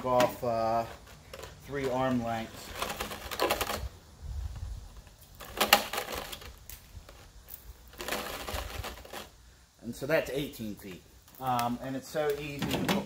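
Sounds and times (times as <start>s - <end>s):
trimmer line rustling and clicking: 0.2s - 9.3s.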